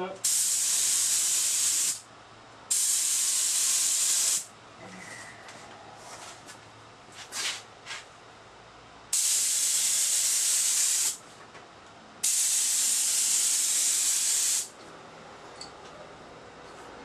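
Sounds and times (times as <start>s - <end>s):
spray gun hissing: 0.2s - 2.0s, 2.7s - 4.5s, 9.1s - 11.2s, 12.2s - 14.7s.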